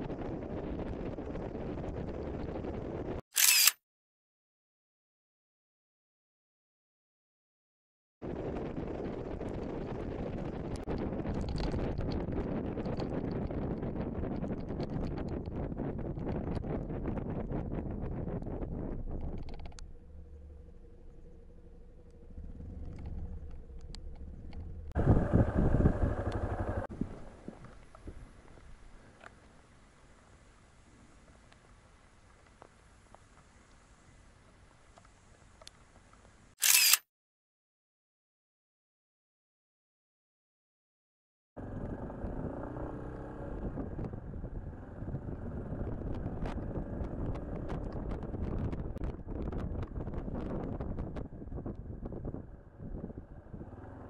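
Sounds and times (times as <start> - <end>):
wind rumble: 0.0 - 3.2, 8.2 - 31.2, 41.6 - 54.0
motorcycle engine: 19.8 - 26.9, 41.6 - 47.9, 52.6 - 54.0
faint light ticks: 31.3 - 33.8, 34.9 - 36.4.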